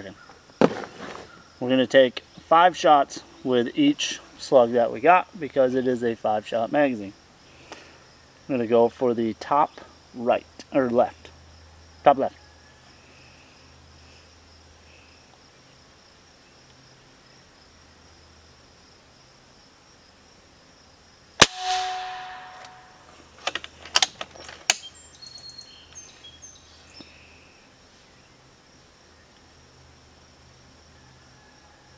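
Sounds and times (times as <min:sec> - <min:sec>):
air rifle shot: 0:21.4 - 0:23.1.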